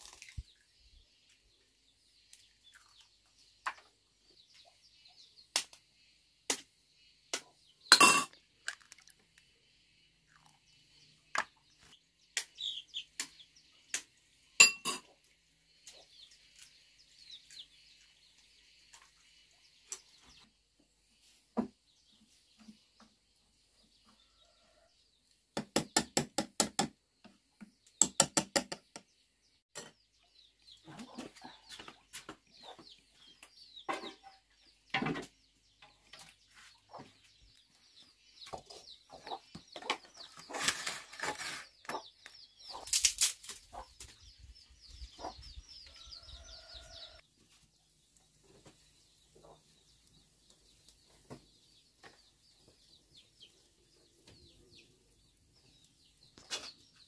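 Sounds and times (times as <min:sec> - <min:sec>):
chicks peeping: 0:11.7 - 0:13.8, 0:30.0 - 0:40.6, 0:41.7 - 0:42.9, 0:43.6 - 0:57.0
chickens clucking: 0:30.7 - 0:35.3, 0:38.0 - 0:42.9, 0:43.6 - 0:47.2, 0:48.4 - 0:52.8.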